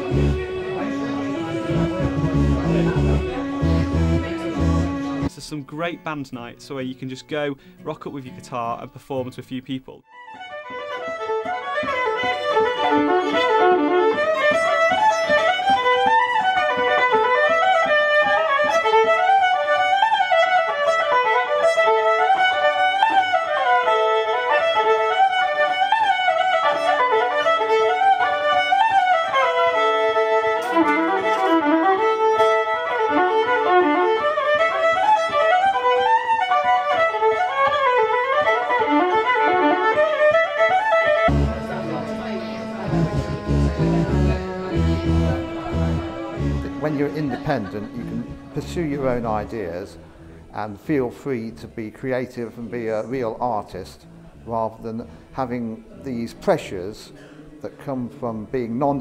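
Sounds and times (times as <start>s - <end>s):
bowed electric violin: 0.0s - 5.3s, 10.1s - 50.6s.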